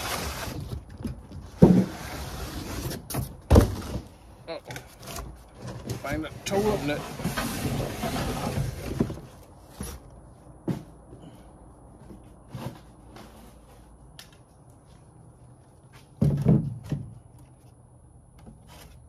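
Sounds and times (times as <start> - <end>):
cardboard box knocks and scrapes: 0.1 - 4.1, 10.6 - 11.0.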